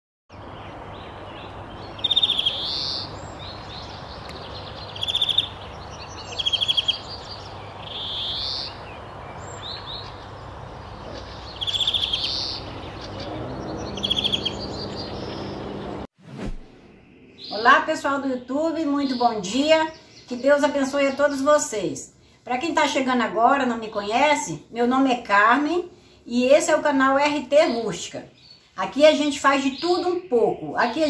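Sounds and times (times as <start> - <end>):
bird buzzy trill call: 11.1 - 16.0.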